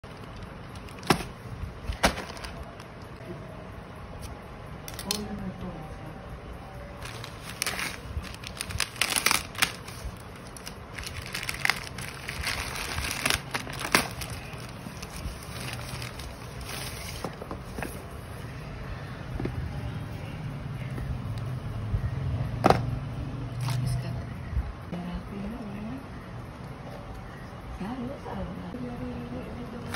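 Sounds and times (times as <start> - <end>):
plastic bag crinkling and tearing: 1.9 - 2.9, 7.0 - 17.2.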